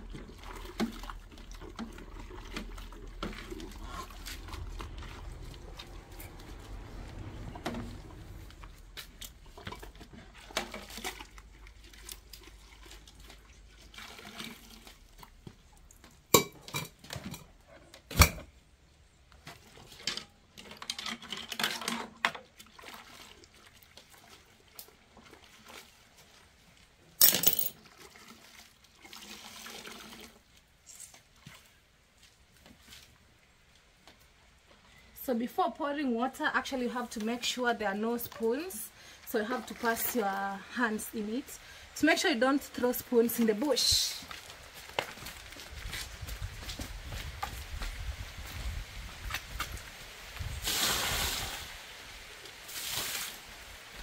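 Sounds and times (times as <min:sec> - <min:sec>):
water sloshing: 0:00.0 - 0:15.7.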